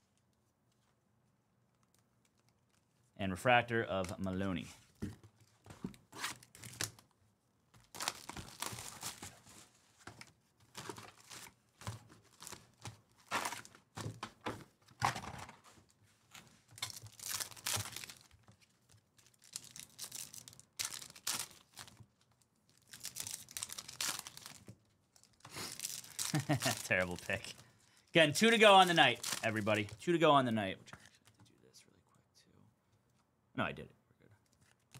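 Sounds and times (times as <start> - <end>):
foil wrappers crinkling and tearing: 7.8 - 9.5, 10.7 - 13.8, 16.7 - 30.0.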